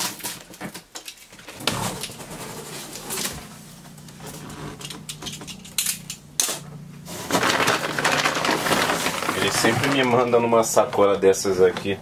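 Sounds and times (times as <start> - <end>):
sharp cardboard rips: 0.0 - 0.8, 7.1 - 10.2
cardboard box tearing and creaking: 0.0 - 3.5, 7.1 - 10.9.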